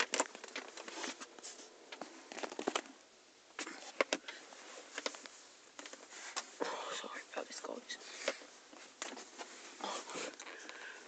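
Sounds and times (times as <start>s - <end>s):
scratchy plastic rattle: 0.0s - 2.9s.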